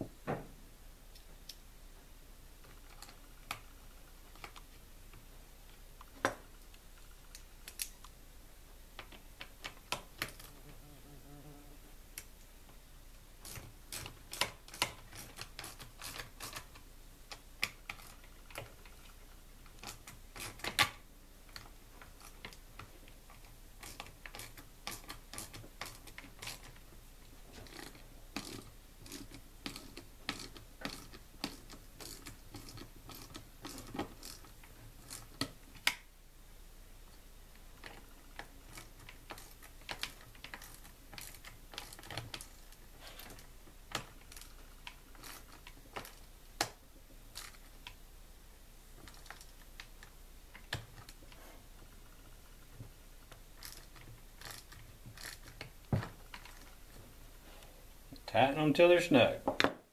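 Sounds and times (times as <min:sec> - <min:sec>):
tool and plastic handling knocks: 0:00.0 - 0:00.6
socket ratchet clicking: 0:53.6 - 0:55.7.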